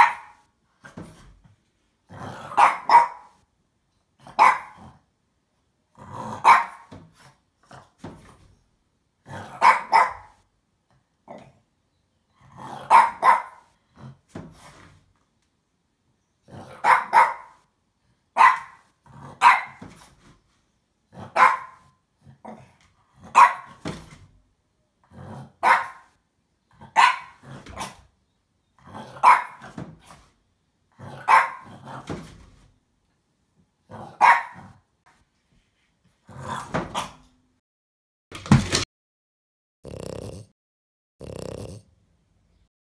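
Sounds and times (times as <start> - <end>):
dog barking: 0.0 - 0.5, 2.5 - 3.4, 4.2 - 4.8, 6.4 - 6.9, 9.4 - 10.4, 12.7 - 13.7, 16.7 - 17.6, 18.4 - 19.8, 21.2 - 21.9, 23.2 - 23.8, 25.6 - 26.2, 26.8 - 28.0, 28.9 - 29.8, 31.1 - 31.8, 34.1 - 34.8
cardboard box thumping on floor: 38.4 - 38.8.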